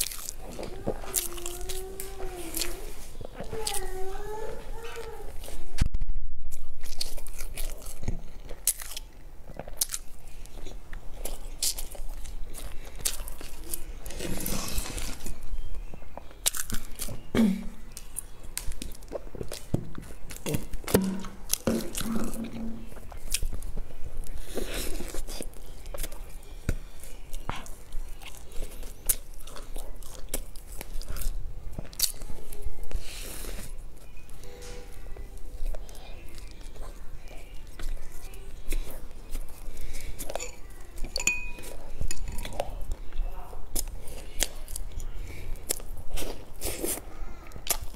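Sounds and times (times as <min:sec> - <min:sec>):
person chewing crispy food: 0:00.0 - 0:05.7, 0:06.5 - 0:47.9
biting into cake: 0:35.6 - 0:47.9.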